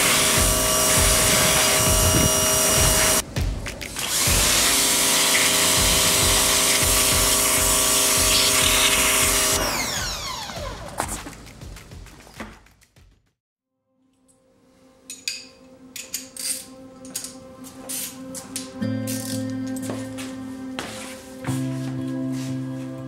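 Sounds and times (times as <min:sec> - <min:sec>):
pressure washer motor whine: 0:00.0 - 0:03.2, 0:04.2 - 0:11.0
water jet hissing: 0:04.0 - 0:09.6.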